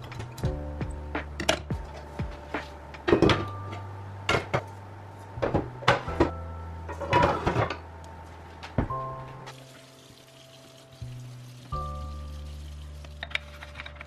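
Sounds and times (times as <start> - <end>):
pans and lids clattering: 3.1 - 3.5, 6.9 - 7.8.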